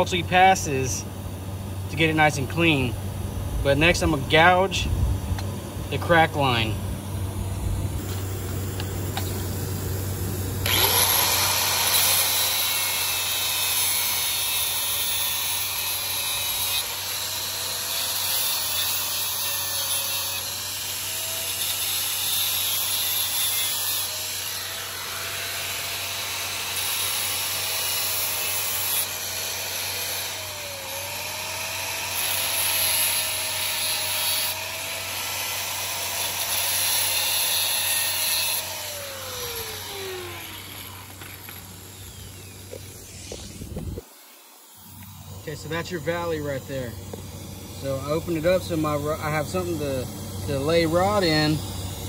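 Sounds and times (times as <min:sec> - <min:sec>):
power grinder grinding metal: 0:10.6 - 0:52.0.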